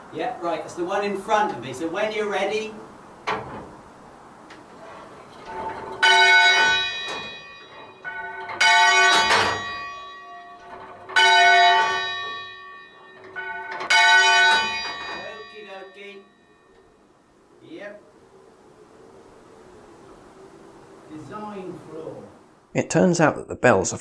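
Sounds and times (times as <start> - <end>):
church bell ringing: 5.5 - 17.1
quiet noise before bell strike: 5.6 - 17.1.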